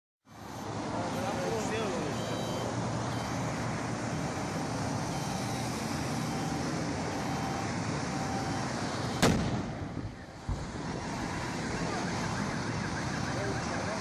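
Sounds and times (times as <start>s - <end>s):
highway traffic: 0.2s - 14.0s
gas tank explosion: 9.2s - 10.8s.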